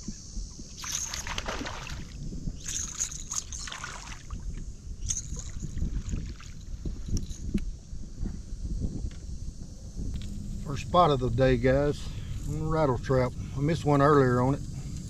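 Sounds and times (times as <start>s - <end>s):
wind rumble on microphone: 0.0s - 15.0s
fish splashing at water surface: 0.8s - 4.3s.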